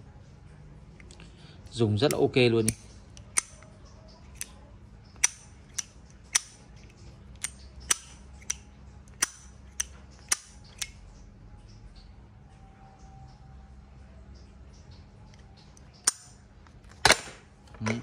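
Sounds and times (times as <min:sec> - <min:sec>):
lighter lid clicking open and shut: 0:02.1 - 0:03.7, 0:04.3 - 0:04.6, 0:05.2 - 0:11.0, 0:15.8 - 0:16.4.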